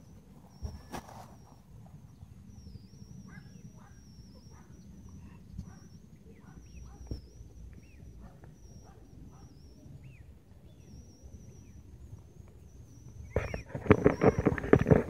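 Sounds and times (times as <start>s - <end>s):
bird-like chirps: 0.0s - 15.0s
faint high whine: 0.0s - 15.0s
microphone handling rustling: 0.3s - 1.6s, 13.3s - 15.0s.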